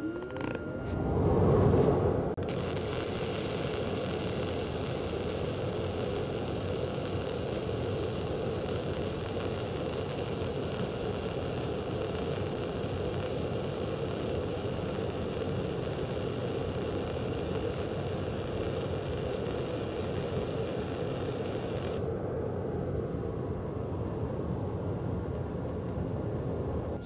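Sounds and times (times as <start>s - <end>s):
welding arc running: 2.4s - 22.1s.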